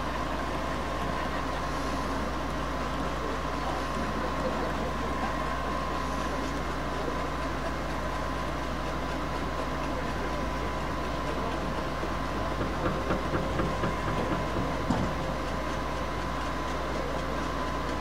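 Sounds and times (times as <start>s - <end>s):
generator running: 0.0s - 18.0s
plaster mixer humming and whining: 0.0s - 18.0s
knocks: 12.5s - 15.2s.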